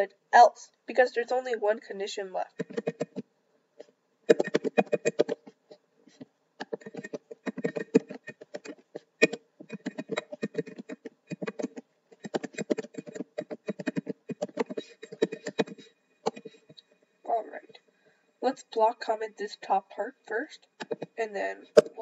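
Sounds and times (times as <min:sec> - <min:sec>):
computer keyboard typing: 0:02.5 - 0:03.2, 0:04.3 - 0:05.5, 0:06.6 - 0:16.7, 0:20.8 - 0:21.2.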